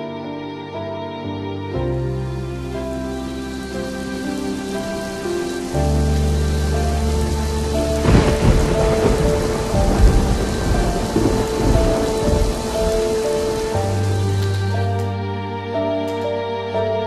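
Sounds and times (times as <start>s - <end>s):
soft background music: 0.0s - 17.0s
steady rain: 2.1s - 15.3s
thunder rumbling: 2.8s - 15.0s.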